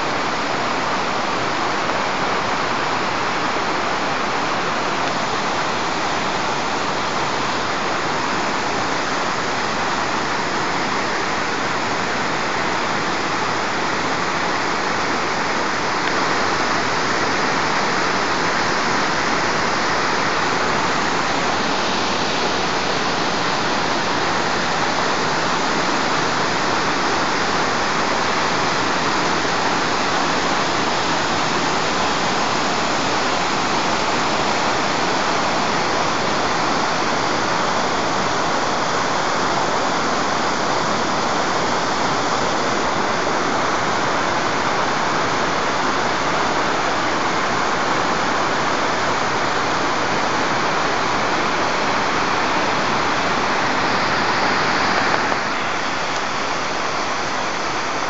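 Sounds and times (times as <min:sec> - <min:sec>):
waterfall rushing over rocks: 0:00.0 - 0:58.0.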